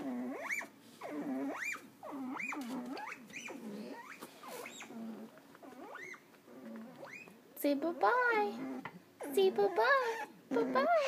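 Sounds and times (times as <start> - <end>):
rodent squeaky rising calls: 0.3 - 5.0, 5.7 - 6.2.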